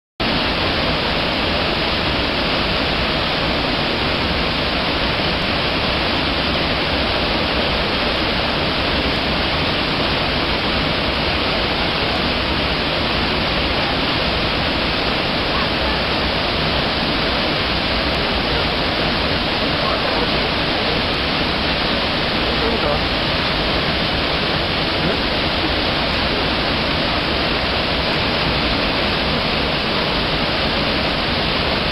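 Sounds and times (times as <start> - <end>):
waterfall rushing: 0.2 - 31.9.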